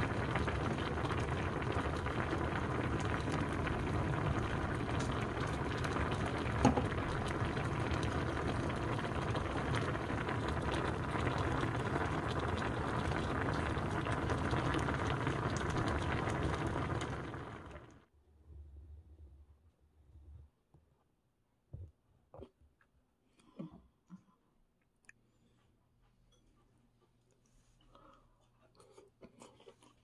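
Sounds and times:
sauce bubbling in a pan: 0.0 - 18.1.

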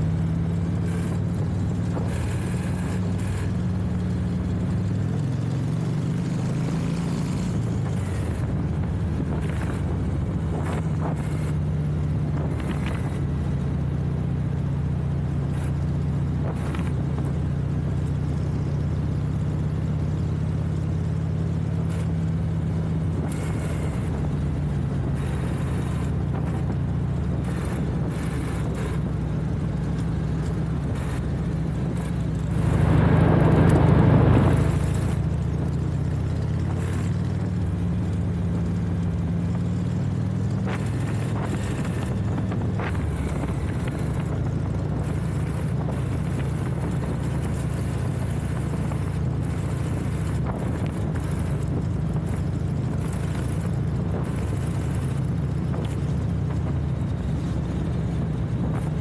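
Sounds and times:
motorcycle engine running: 0.0 - 59.0
rush of noise: 23.1 - 39.6.

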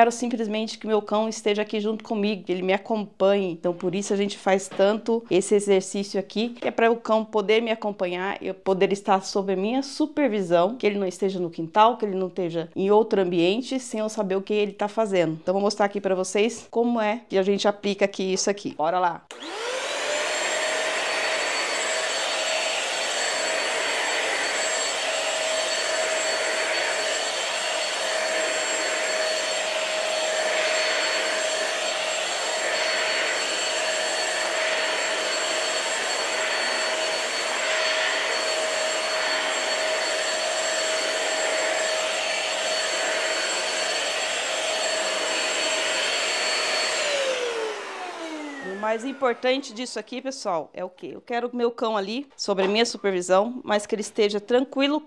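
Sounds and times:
vacuum cleaner motor whine: 19.3 - 50.0
vacuum motor winding down: 19.3 - 50.0.

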